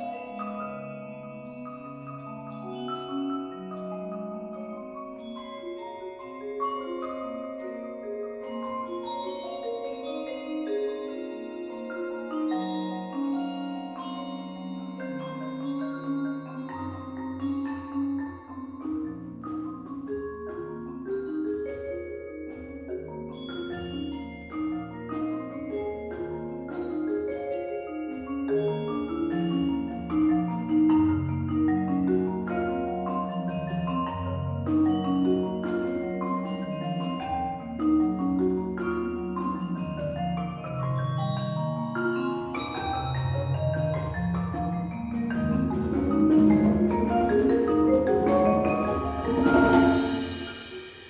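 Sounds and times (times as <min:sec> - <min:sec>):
solo marimba: 0:00.0 - 0:51.0
low marimba bass line: 0:27.6 - 0:50.7.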